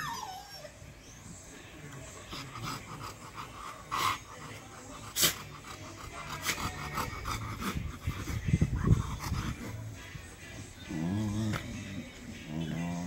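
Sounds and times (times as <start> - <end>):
dog panting: 2.1 - 10.2.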